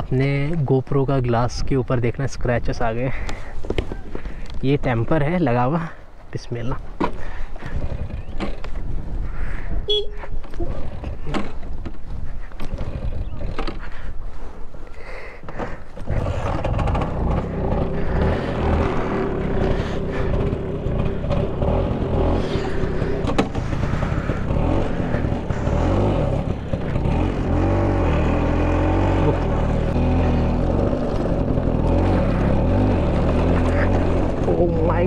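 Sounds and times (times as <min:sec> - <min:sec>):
scooter engine running: 0:15.6 - 0:35.0.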